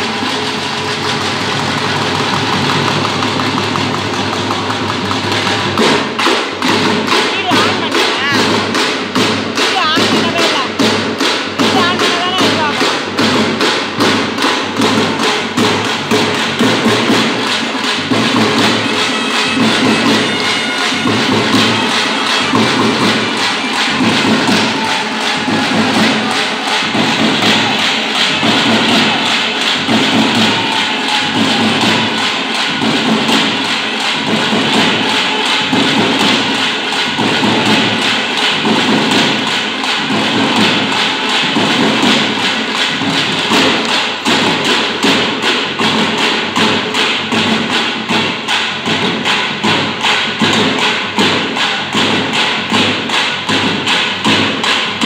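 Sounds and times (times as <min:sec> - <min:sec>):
frame drums beaten with sticks: 0:00.0 - 0:55.0.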